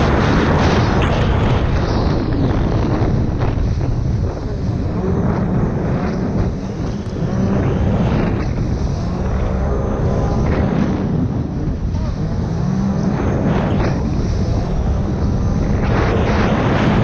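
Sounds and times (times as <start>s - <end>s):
jet ski engine drone: 0.0s - 17.0s
wind buffeting microphone: 0.0s - 17.0s.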